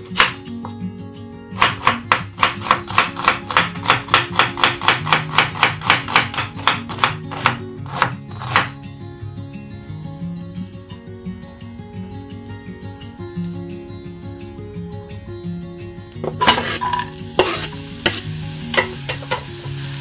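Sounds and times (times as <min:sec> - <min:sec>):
knife chopping onion on board: 0:00.0 - 0:00.7, 0:01.6 - 0:08.8, 0:17.4 - 0:18.2.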